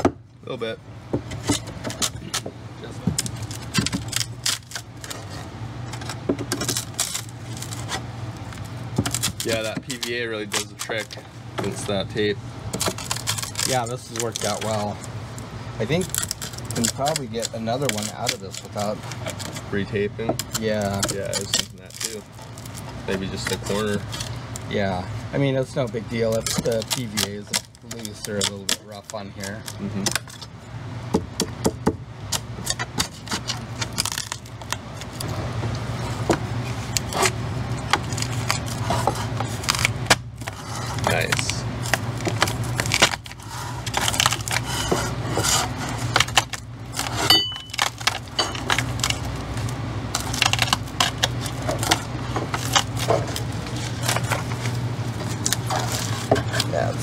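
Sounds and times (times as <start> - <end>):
steady low hum: 0.0 - 57.0
metal scraper scraping fiberglass: 42.8 - 47.4.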